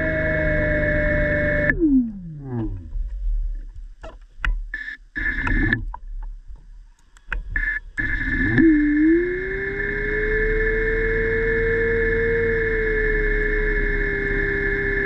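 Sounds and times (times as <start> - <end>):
underwater scooter motor whine: 0.0 - 3.7, 5.2 - 5.9, 7.6 - 15.0.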